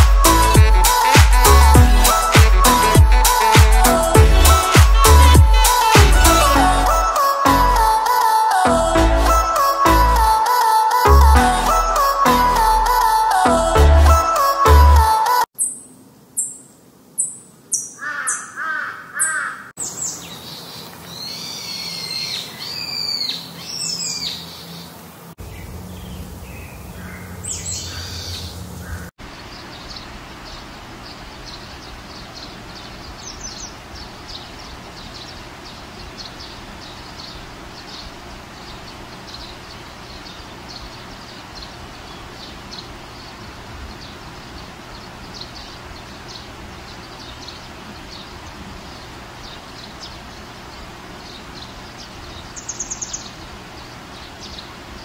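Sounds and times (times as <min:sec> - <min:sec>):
birds fluting and warbling: 0:00.0 - 0:15.0, 0:15.6 - 0:55.0
faint high bird chirps: 0:15.6 - 0:50.3, 0:51.2 - 0:53.4.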